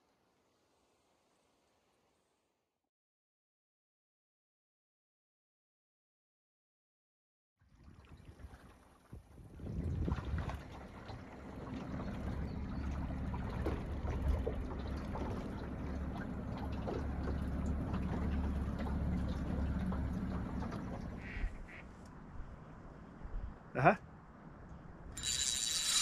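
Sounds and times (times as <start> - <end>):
boat outboard motor running: 9.8 - 21.8, 25.2 - 26.0.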